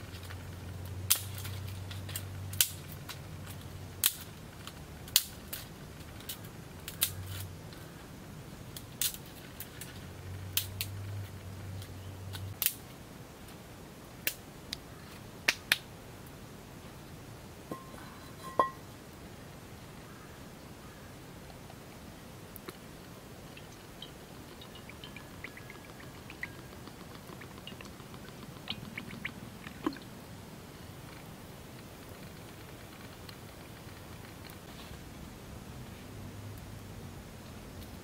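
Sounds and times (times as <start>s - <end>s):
low steady hum: 0.0s - 38.0s
sharp snaps and clicks: 1.1s - 7.5s, 8.8s - 11.2s, 11.8s - 12.9s, 14.2s - 14.8s, 15.5s - 15.9s, 23.6s - 30.0s.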